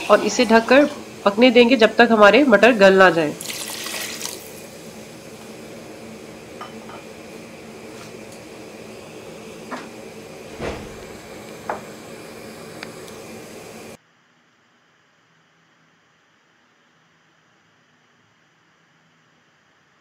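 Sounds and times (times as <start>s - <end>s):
steady hiss: 0.0s - 14.0s.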